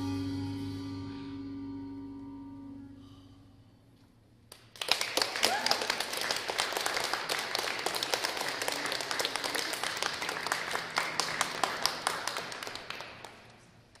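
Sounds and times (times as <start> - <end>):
audience applauding: 4.5 - 13.7.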